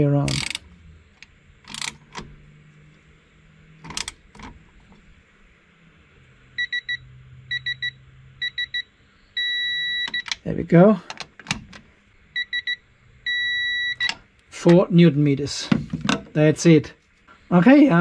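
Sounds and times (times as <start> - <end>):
torque adapter beeping: 0.2 - 0.6, 9.4 - 10.4
sharp clicks: 0.3 - 0.6.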